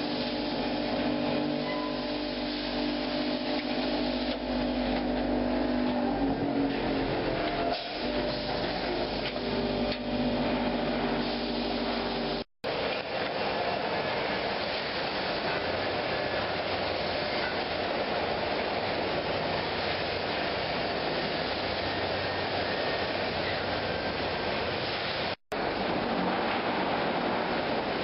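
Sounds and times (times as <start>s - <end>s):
machinery hum with held tones: 0.0s - 12.5s
dense mechanical noise: 0.0s - 28.0s.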